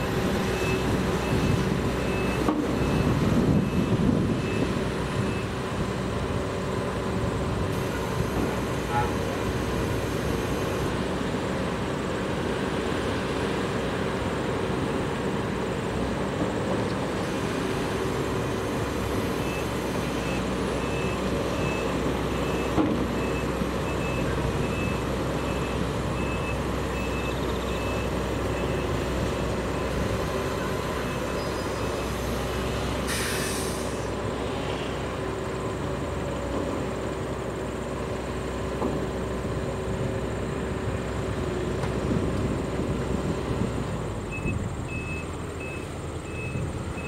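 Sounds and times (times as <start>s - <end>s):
reversing alarm beeping: 0.0s - 5.6s, 19.4s - 29.1s, 29.7s - 32.2s, 44.3s - 47.0s
diesel truck engines running: 0.0s - 47.0s
air hiss: 33.0s - 35.0s.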